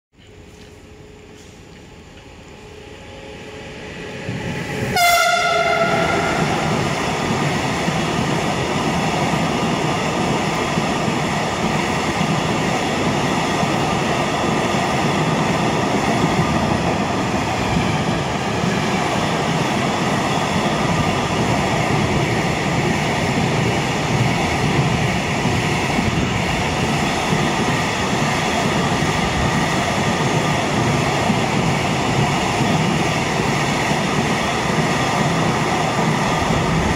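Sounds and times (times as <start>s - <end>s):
freight wagons rumbling on rails: 4.2s - 36.9s
train horn blast: 4.9s - 6.8s.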